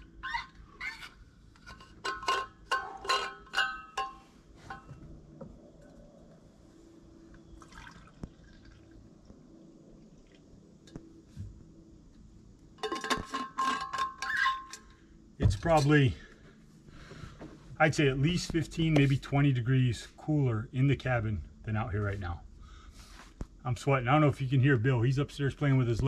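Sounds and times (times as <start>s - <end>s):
metal clinks and scrapes: 0.0s - 5.1s, 12.8s - 15.9s
liquid pouring: 7.6s - 9.2s.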